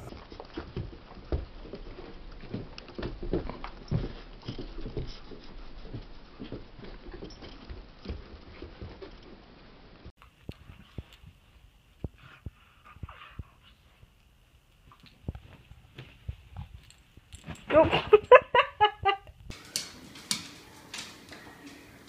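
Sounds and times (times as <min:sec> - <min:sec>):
puppy paws running on carpet: 0:14.8 - 0:18.0.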